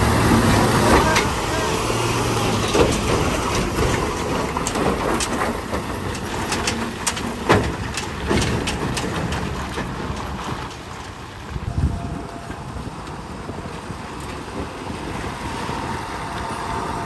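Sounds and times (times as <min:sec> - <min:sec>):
dump truck engine drone: 0:00.0 - 0:17.0
short knocks and rattles: 0:02.4 - 0:11.2.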